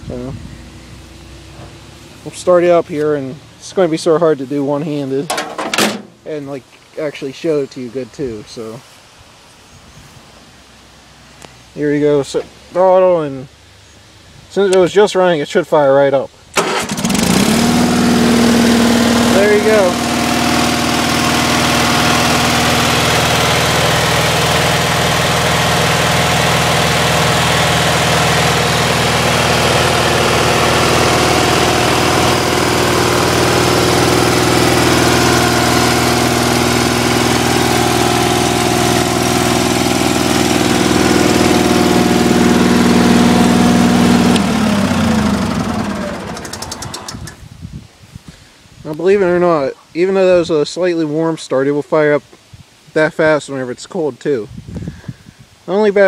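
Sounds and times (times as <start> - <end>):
engine running down: 0.0 - 6.5, 16.6 - 47.4
tractor engine idling: 0.1 - 6.6, 16.6 - 47.4.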